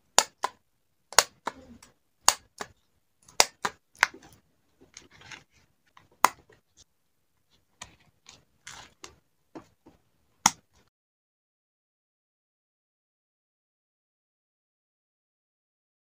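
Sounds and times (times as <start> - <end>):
paper and plastic sleeve rustling: 4.2 - 5.7.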